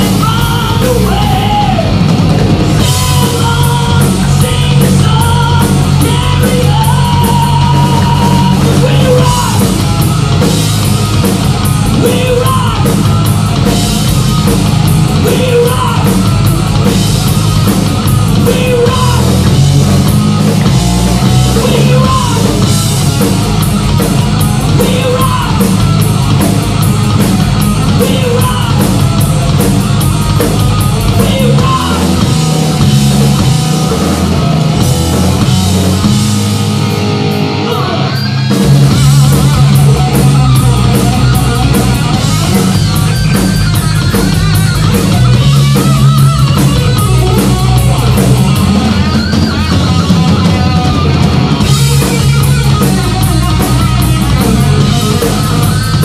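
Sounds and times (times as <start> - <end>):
person singing: 0.0 - 1.9, 2.8 - 9.7, 15.2 - 16.2, 18.4 - 19.5, 21.6 - 22.6, 24.8 - 25.7, 28.0 - 28.9, 31.1 - 32.2
rock band playing: 0.0 - 56.0.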